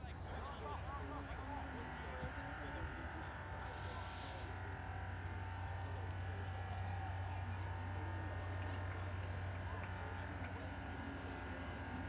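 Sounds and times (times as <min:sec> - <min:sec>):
faint distant voices: 0:00.0 - 0:12.0
brief hiss: 0:03.7 - 0:04.6.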